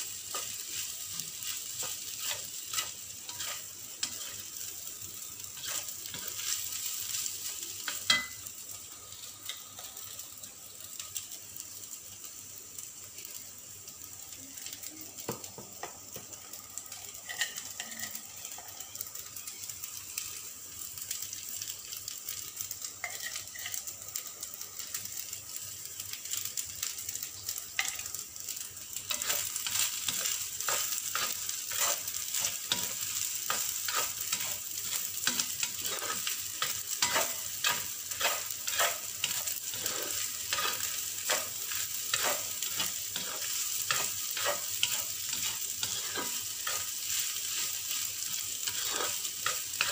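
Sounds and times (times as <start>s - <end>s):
fried rice sizzling in pan: 0.0s - 49.9s
spoon clinking and scraping pan: 0.2s - 4.5s, 5.6s - 7.2s, 7.8s - 8.5s, 17.2s - 18.9s, 23.0s - 23.8s, 27.8s - 28.1s, 29.1s - 49.9s.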